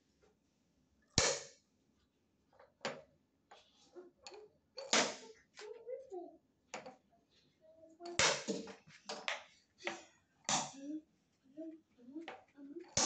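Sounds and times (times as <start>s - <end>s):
wooden rings knocking: 8.0s - 10.8s.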